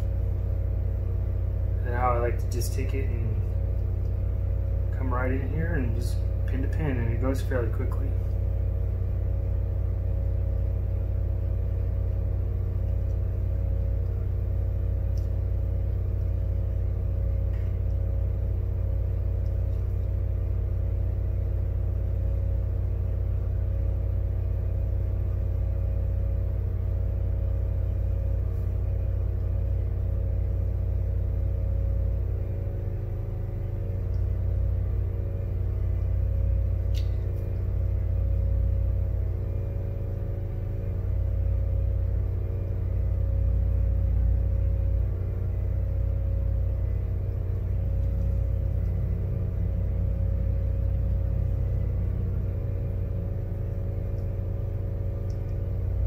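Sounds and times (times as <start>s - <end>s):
fan humming and whirring: 0.0s - 56.0s
faint soldering ticks: 55.2s - 55.8s.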